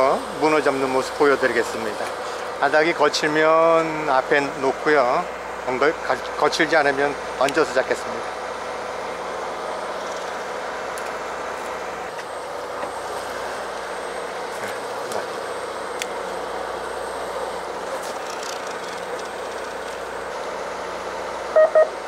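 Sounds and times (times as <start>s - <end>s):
boat engine droning: 0.0s - 22.0s
short high beeps: 21.5s - 22.0s.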